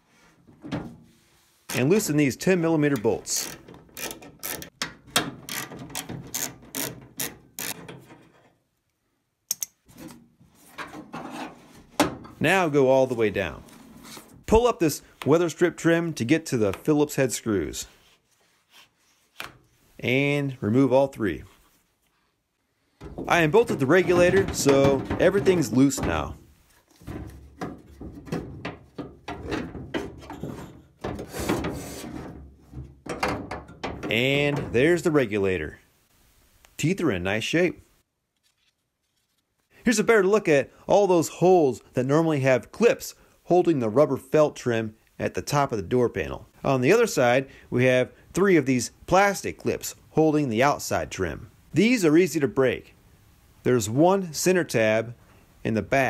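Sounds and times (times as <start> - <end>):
metal clunks and knocks: 0.5 - 1.1, 3.6 - 7.2, 7.8 - 8.6, 9.9 - 12.4, 23.0 - 35.0
metal scraping rub: 9.9 - 12.0, 23.0 - 32.8.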